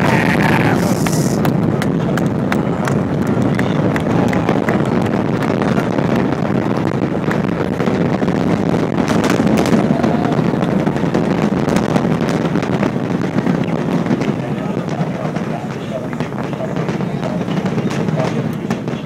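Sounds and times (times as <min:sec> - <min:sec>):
distant rocket rumble with crackling: 0:00.0 - 0:19.0.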